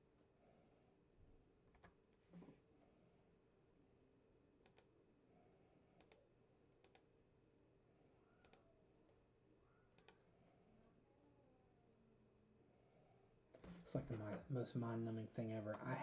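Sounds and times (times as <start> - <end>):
faint keyboard clicks: 1.6 - 2.6, 4.6 - 5.0, 6.0 - 7.1, 8.4 - 8.7, 9.9 - 10.3.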